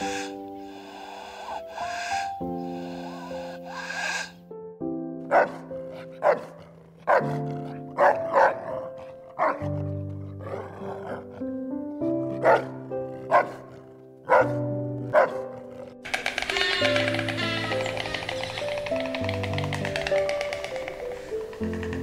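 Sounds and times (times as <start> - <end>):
background music with sustained notes: 0.0 - 22.0
dog barking: 5.3 - 11.4, 12.3 - 16.0.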